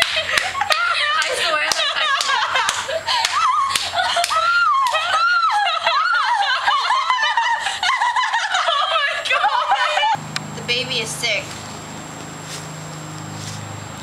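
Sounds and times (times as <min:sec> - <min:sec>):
young women laughing: 0:00.0 - 0:10.2.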